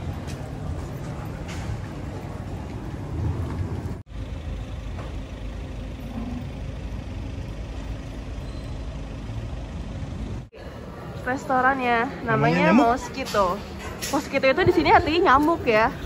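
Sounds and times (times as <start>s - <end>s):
traffic rumble: 0.0s - 16.0s.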